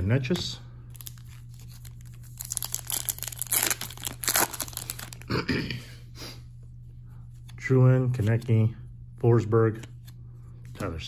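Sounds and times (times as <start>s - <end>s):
plastic foil wrapper tearing: 0.9s - 5.3s.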